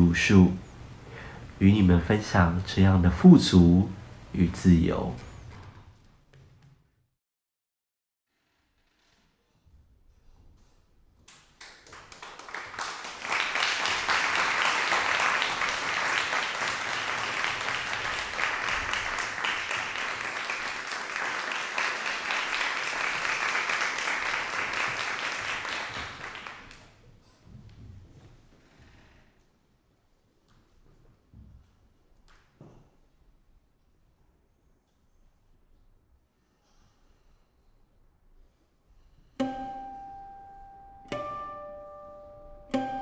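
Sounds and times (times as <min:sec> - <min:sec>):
audience applauding: 0:11.6 - 0:27.0.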